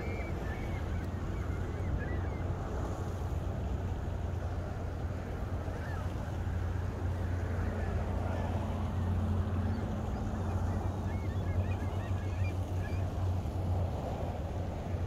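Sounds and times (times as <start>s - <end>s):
faint distant bird calls: 0.0s - 2.9s, 5.7s - 13.6s
wind rumble on microphone: 0.0s - 15.0s.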